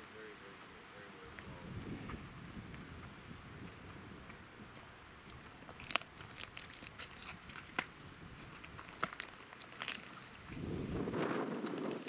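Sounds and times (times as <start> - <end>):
lions chewing and crunching bone: 4.2 - 10.9.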